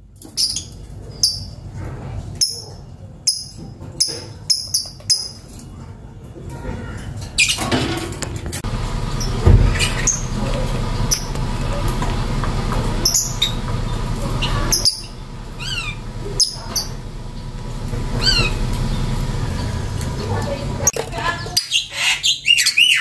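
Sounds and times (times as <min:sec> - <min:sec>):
lovebird chirping: 0:02.4 - 0:05.4, 0:09.2 - 0:10.5, 0:13.0 - 0:20.4
low background rumble: 0:08.4 - 0:21.4
dull thump: 0:09.2 - 0:10.2.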